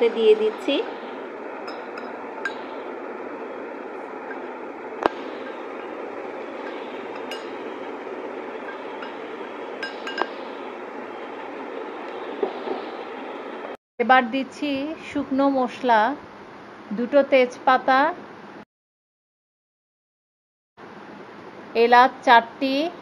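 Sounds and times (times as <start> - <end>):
steady background hiss: 0.0 - 13.8.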